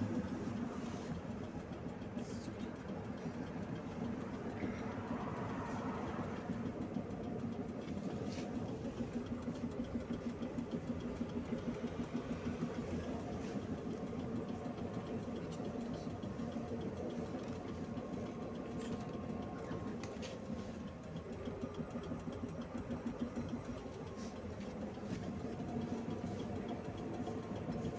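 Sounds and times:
bus engine idling: 0:00.0 - 0:27.9.

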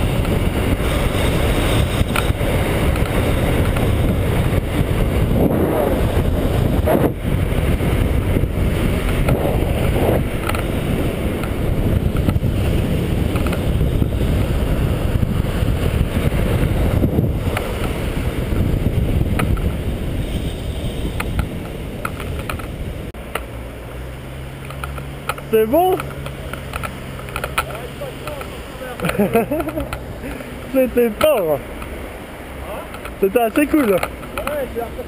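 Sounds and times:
wind buffeting microphone: 0:00.0 - 0:23.2
skate wheels rolling on asphalt: 0:00.0 - 0:35.0.

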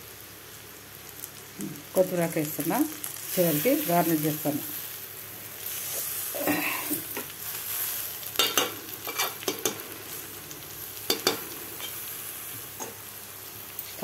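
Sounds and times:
food sizzling in a pan: 0:00.0 - 0:14.0
metal spatula scraping a pan: 0:07.7 - 0:09.8.

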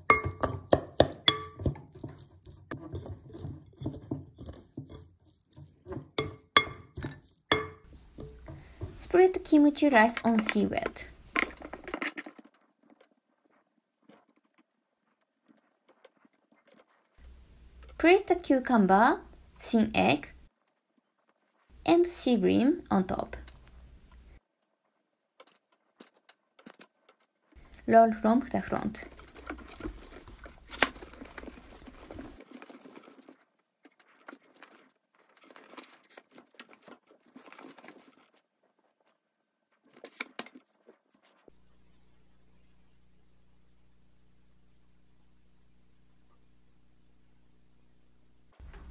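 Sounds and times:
bamboo mat rustling and clicking: 0:00.0 - 0:09.1, 0:10.1 - 0:18.0, 0:24.4 - 0:27.8, 0:29.0 - 0:41.5
wooden utensil tapping rice: 0:00.0 - 0:09.1.

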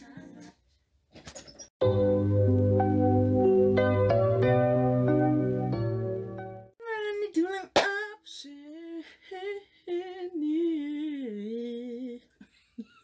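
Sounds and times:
woman singing unaccompanied: 0:06.8 - 0:12.4.

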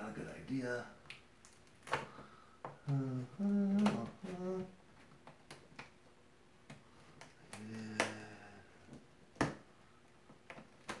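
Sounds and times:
man humming: 0:02.8 - 0:04.8, 0:07.5 - 0:08.8.

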